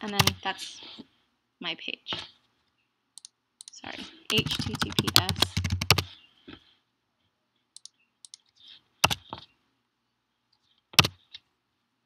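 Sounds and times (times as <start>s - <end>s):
computer keyboard keystrokes: 0.0s - 0.4s, 3.2s - 6.1s, 9.0s - 9.3s.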